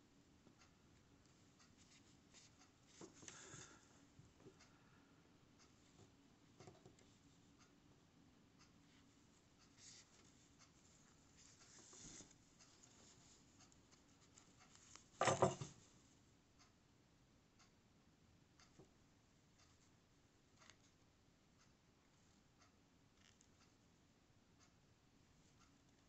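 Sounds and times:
needle ticking through stitches: 0:08.6 - 0:15.5.

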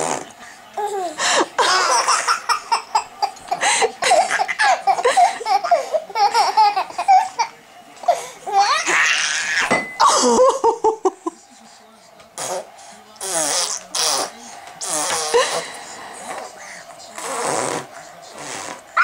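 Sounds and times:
toddlers giggling and laughing: 0:00.9 - 0:11.4.

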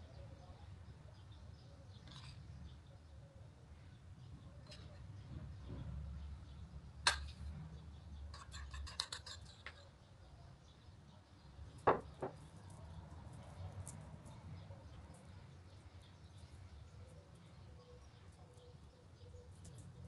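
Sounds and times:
spoon scraping jam on dough: 0:08.3 - 0:09.9
knocks: 0:11.9 - 0:12.4.

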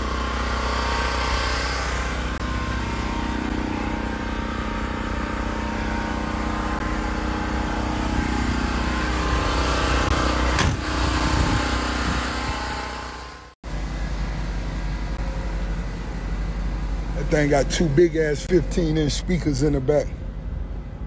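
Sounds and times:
vehicle engine idling: 0:00.0 - 0:21.0.

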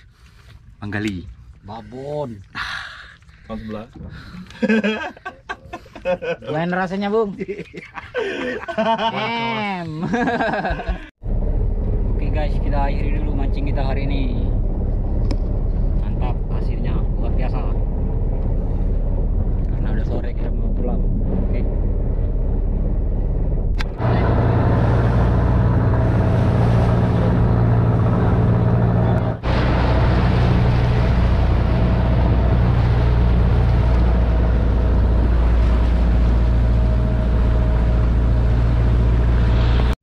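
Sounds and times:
water rushing along hull: 0:08.2 - 0:40.0
boat engine running: 0:10.8 - 0:39.9.

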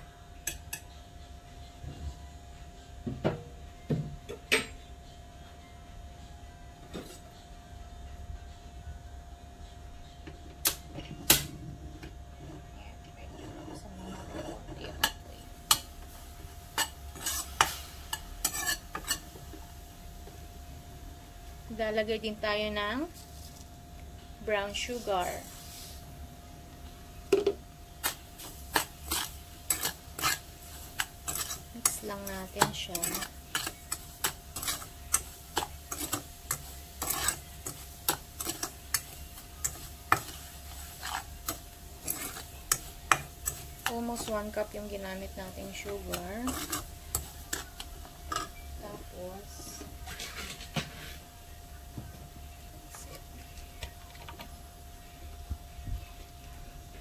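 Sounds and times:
metal spoon scraping a pan: 0:12.4 - 0:15.9, 0:16.7 - 0:19.3, 0:28.0 - 0:51.3.

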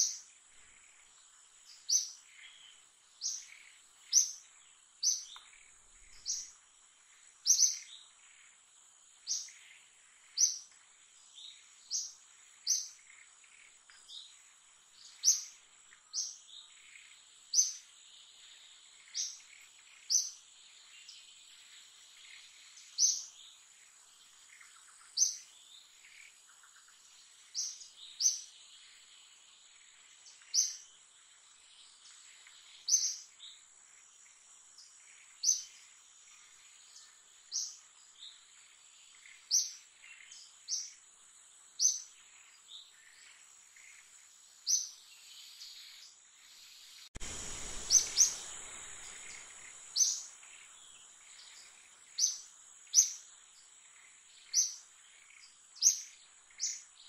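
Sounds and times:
bird chirping: 0:00.0 - 0:57.0
insect drone: 0:00.0 - 0:57.0
low rushing noise: 0:47.2 - 0:50.3.

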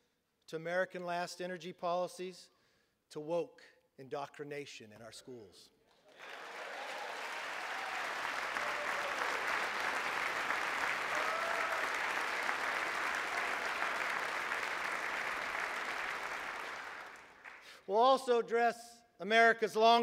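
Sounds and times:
crowd applauding: 0:06.0 - 0:17.8.

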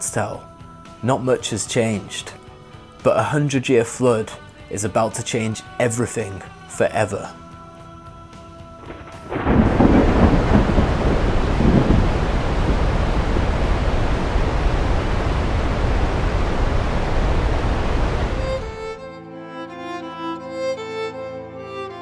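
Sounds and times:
river water rushing: 0:10.9 - 0:19.0.

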